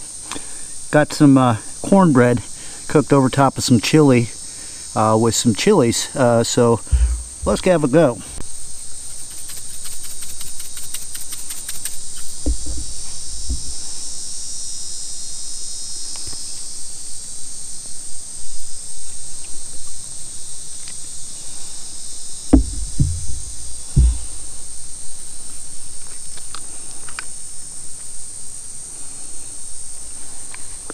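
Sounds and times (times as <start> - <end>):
insect chorus buzzing: 0.0 - 24.8
dull handling thumps: 6.9 - 8.0, 12.3 - 14.2, 22.5 - 24.6
seasoning shaker rattling: 9.1 - 12.8.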